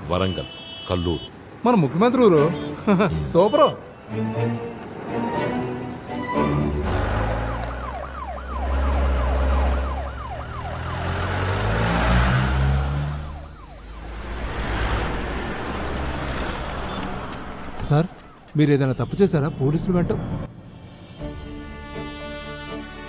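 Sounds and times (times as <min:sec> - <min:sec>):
vehicles rumbling past: 0:01.0 - 0:18.8
police siren yelping: 0:07.3 - 0:11.2, 0:12.9 - 0:14.3.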